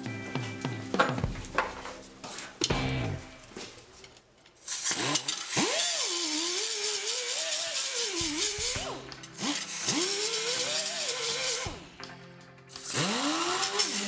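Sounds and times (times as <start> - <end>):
disc grinding steel: 4.6 - 11.8, 12.7 - 14.0
air grinder motor whine: 4.7 - 12.0, 12.7 - 14.0.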